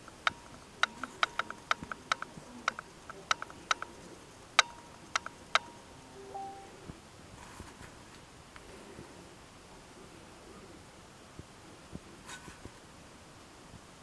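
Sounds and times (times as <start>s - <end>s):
sharp clicks: 0.0s - 5.8s
short low tone: 6.4s - 6.8s.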